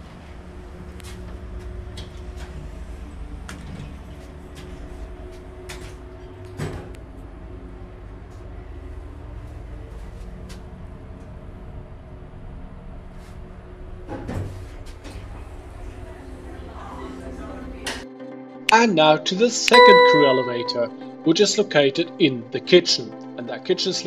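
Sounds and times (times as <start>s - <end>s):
low hum of elevator machinery: 0.0s - 18.0s.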